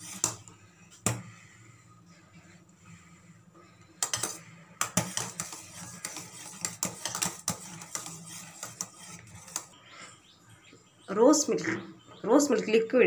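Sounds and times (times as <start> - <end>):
metal spoon scraping pan: 0.0 - 1.8, 2.5 - 9.8.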